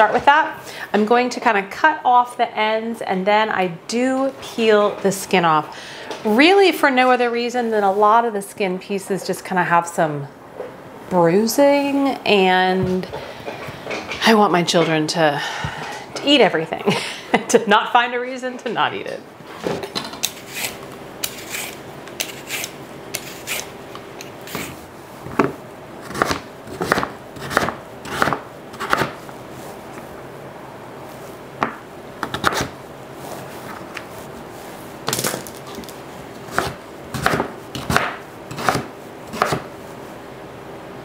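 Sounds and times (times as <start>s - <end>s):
vegetable peeler stripping skin: 20.2s - 23.7s.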